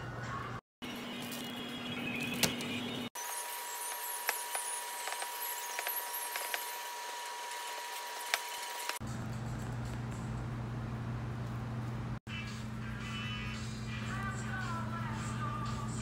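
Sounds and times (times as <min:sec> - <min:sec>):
high electrical whine: 0:00.8 - 0:09.0.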